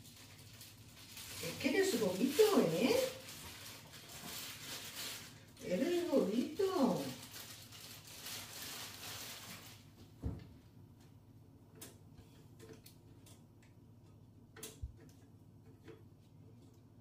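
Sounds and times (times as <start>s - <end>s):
plastic bread bag rustling: 0.0s - 10.5s.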